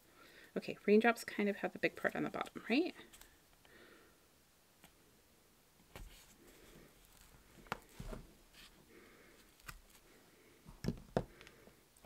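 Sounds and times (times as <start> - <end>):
faint taps and rustles of hands: 7.2 - 8.2.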